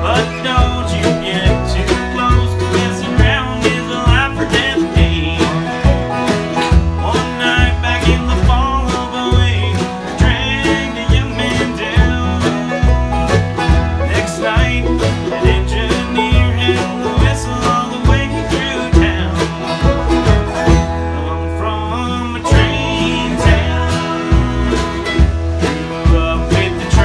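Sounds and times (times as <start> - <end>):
pulsing bass beat: 0.0 - 21.2, 22.5 - 27.0
bluegrass-style music: 0.0 - 27.0
plucked string notes: 0.0 - 27.0.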